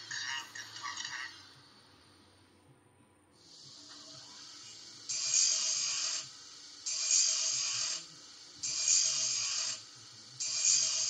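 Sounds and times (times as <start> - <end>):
rhythmic hissing bursts: 3.4 - 11.0.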